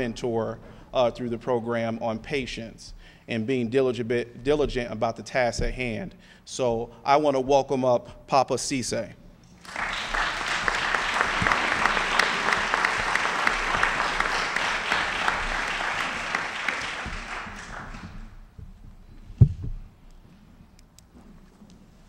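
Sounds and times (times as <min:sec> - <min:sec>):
audience applause: 0:09.6 - 0:18.3.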